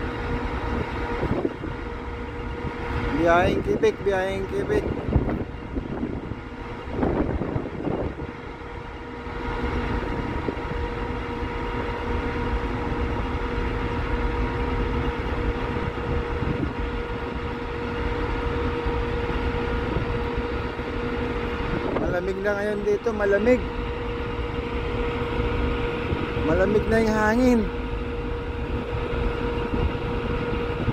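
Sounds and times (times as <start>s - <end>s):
ship machinery hum: 0.0s - 30.9s
wind on microphone: 0.7s - 1.8s, 2.6s - 8.4s, 15.6s - 17.3s, 21.3s - 22.5s, 25.2s - 27.3s, 28.4s - 30.9s.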